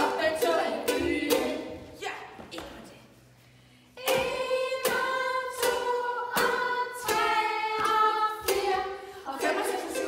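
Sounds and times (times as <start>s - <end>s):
children singing: 0.0s - 1.9s, 4.0s - 10.0s
ukulele strumming: 0.0s - 2.8s, 4.0s - 10.0s.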